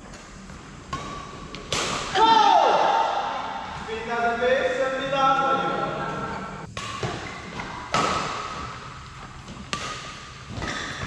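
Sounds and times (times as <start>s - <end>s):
racket hitting shuttlecock: 0.9s - 3.9s, 6.7s - 11.0s.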